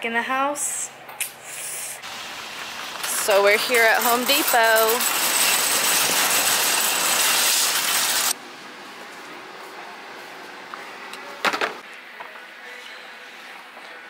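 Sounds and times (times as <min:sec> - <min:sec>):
shopping cart rattling on asphalt: 0:03.0 - 0:08.4.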